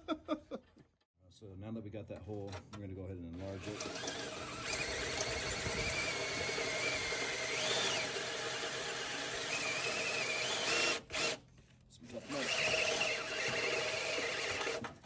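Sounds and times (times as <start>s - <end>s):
drill motor running under load: 3.4s - 11.4s, 12.2s - 15.0s.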